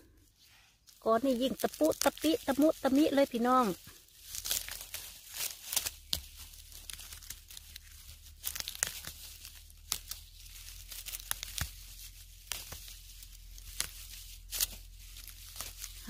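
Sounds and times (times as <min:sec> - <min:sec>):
dry fronds crackling and rustling: 0:00.0 - 0:16.0
fiddleheads snapping: 0:04.3 - 0:13.0.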